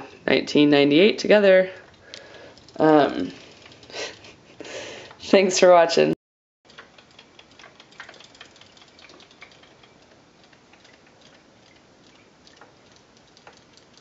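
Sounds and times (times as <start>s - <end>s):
robotic toy fish ticking: 6.7s - 14.0s.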